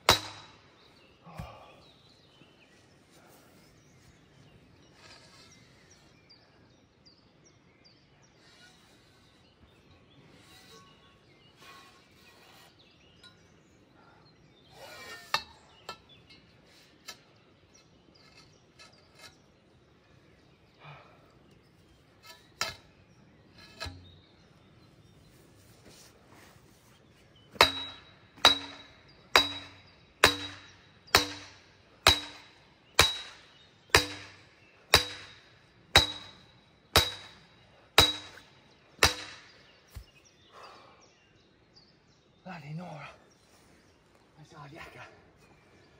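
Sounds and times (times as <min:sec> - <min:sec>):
sledgehammer striking steel pole: 0:00.0 - 0:00.6, 0:23.6 - 0:24.2, 0:27.5 - 0:40.0.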